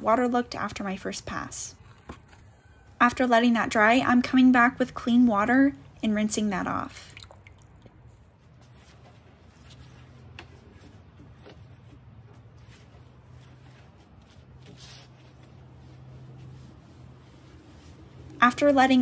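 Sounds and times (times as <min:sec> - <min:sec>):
rag wiping wood: 0:12.6 - 0:19.0.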